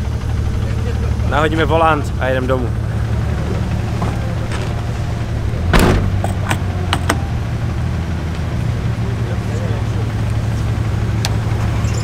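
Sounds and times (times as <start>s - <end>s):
car engine idling: 0.0s - 12.0s
loud clunk: 3.9s - 7.3s.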